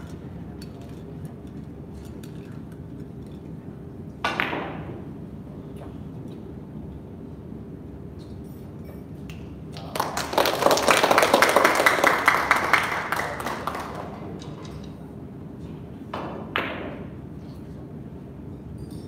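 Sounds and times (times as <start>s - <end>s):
small group clapping: 9.3s - 14.6s.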